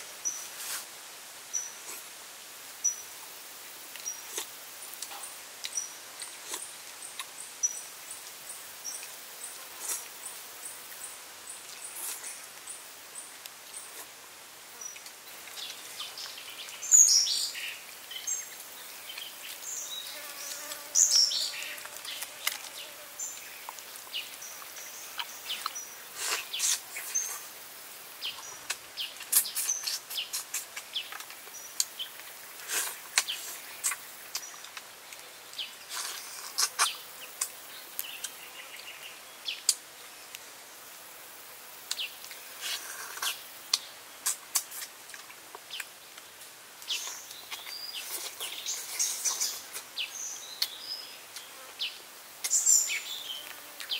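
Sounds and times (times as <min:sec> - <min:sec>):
insects buzzing: 0:14.7 - 0:34.6, 0:46.2 - 0:53.9
birds chirping: 0:14.8 - 0:27.4.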